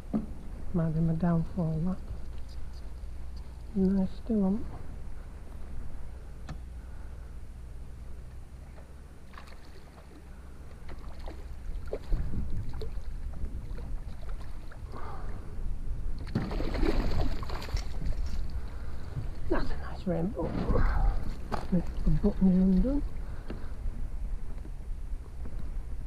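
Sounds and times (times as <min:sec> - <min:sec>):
fish splashing in water: 0:09.3 - 0:15.0, 0:16.2 - 0:18.9
wind rumble on microphone: 0:10.9 - 0:26.0.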